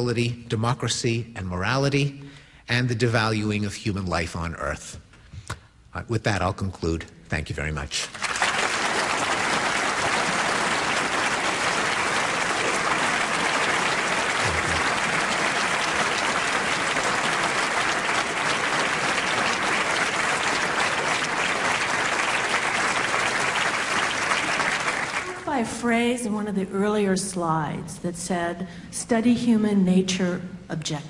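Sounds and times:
audience applauding: 8.1s - 25.6s.

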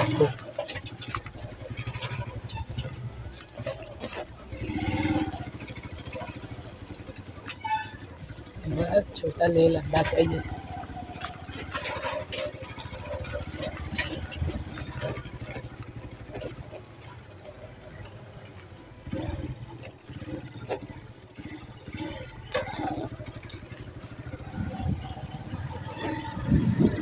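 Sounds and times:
knocks and rattles from bumps: 0.0s - 17.5s
motorcycle engine running: 0.0s - 27.0s.

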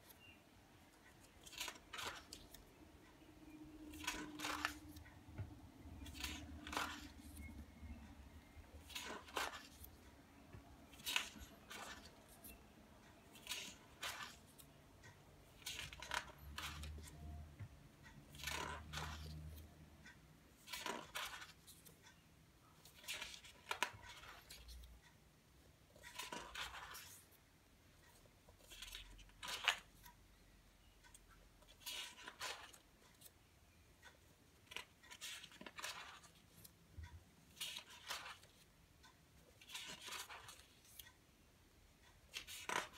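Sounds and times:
book pages being turned: 0.9s - 8.0s, 8.7s - 10.1s, 10.8s - 14.8s, 15.4s - 17.7s, 18.3s - 19.7s, 20.6s - 22.0s, 22.8s - 24.8s, 26.0s - 27.4s, 28.0s - 30.2s, 31.0s - 33.3s, 34.6s - 36.7s, 37.5s - 38.7s, 39.4s - 41.1s, 42.3s - 42.9s.

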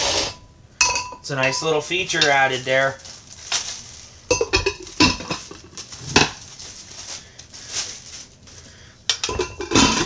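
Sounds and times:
glass lid clinking on ceramic: 0.8s - 1.6s, 9.2s - 10.0s.

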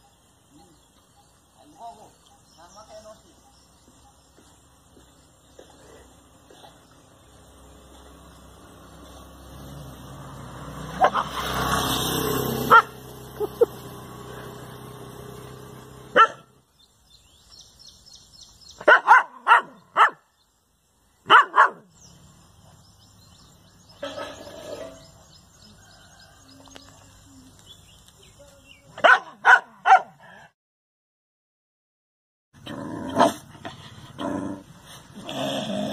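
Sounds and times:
dogs barking: 10.9s - 11.4s, 12.6s - 13.0s, 16.1s - 16.6s, 18.8s - 20.3s, 21.2s - 21.9s, 29.0s - 30.5s.

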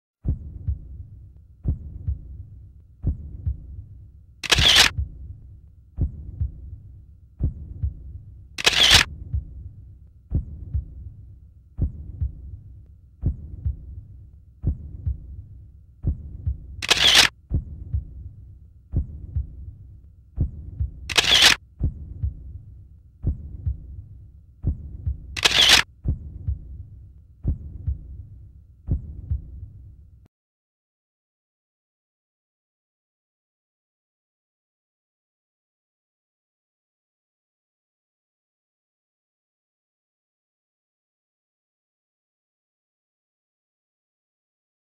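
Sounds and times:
heartbeat double thumps: 0.2s - 30.0s
camera shutter snaps: 4.4s - 4.9s, 8.6s - 9.1s, 16.8s - 17.3s, 21.1s - 21.6s, 25.4s - 25.9s.

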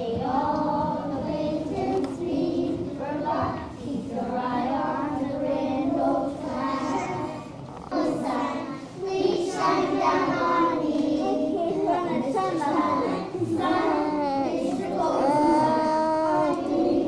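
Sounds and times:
children singing together: 0.0s - 17.0s.

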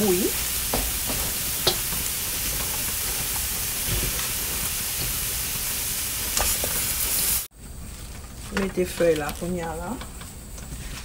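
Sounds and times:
vegetables sizzling in a wok: 0.0s - 11.0s.

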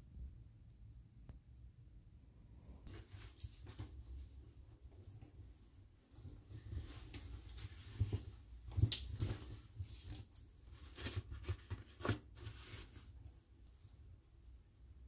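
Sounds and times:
jacket rustling and swishing: 2.8s - 13.4s.

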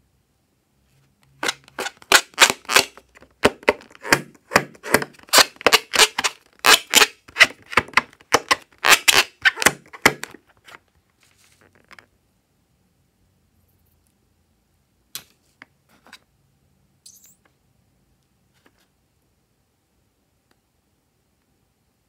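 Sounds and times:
rubber balloon squeaking: 1.4s - 10.3s.

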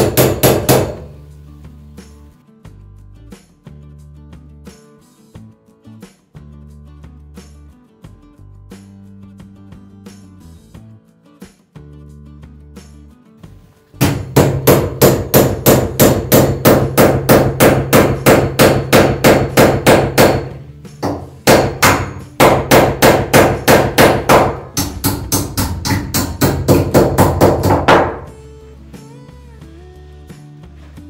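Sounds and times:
hammer driving nail into wood: 0.0s - 1.2s, 14.0s - 28.3s.

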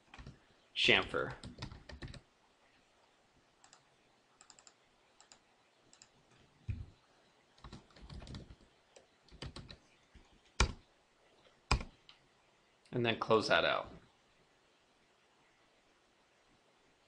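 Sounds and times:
typing on computer keyboard: 0.0s - 0.4s, 1.4s - 2.2s, 4.4s - 6.1s, 7.6s - 8.6s, 9.3s - 9.8s, 10.6s - 10.8s, 11.7s - 11.9s.

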